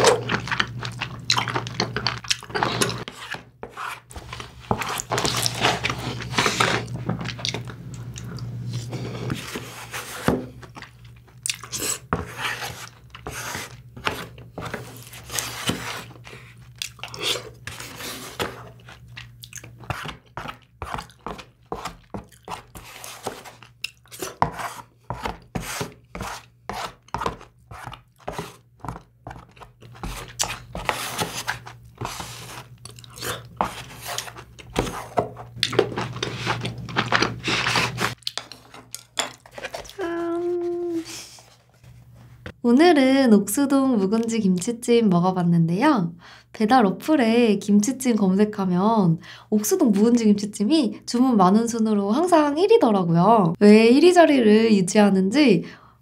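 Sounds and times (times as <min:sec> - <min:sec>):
wet crunchy chewing: 0:00.0 - 0:03.3, 0:10.6 - 0:12.1, 0:12.8 - 0:24.4, 0:27.2 - 0:40.0.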